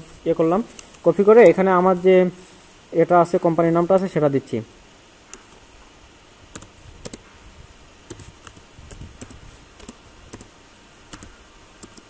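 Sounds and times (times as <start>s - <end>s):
keyboard typing: 6.5s - 7.2s, 8.1s - 12.0s.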